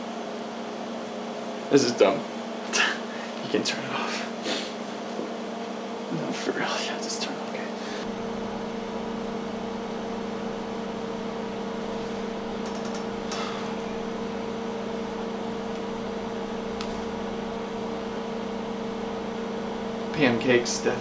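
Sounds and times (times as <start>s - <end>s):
electric hum: 5.2s - 21.0s.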